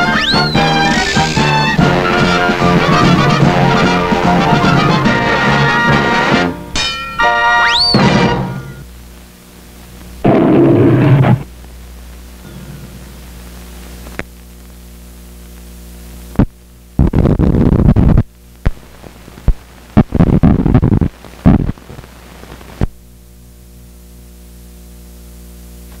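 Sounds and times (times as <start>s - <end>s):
loud crackling bursts: 0.0s - 6.5s, 7.7s - 12.4s, 15.4s - 23.2s.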